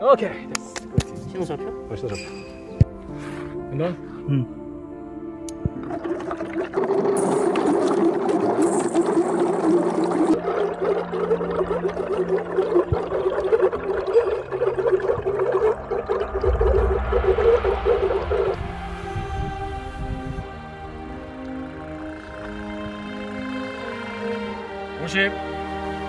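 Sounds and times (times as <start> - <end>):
air bubbling through water: 5.5 - 20.4
low rumble: 13.1 - 21.8.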